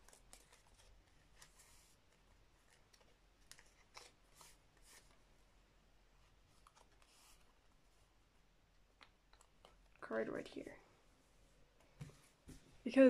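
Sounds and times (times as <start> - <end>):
card rustling on plastic sleeves: 0.0 - 5.3, 6.2 - 7.8.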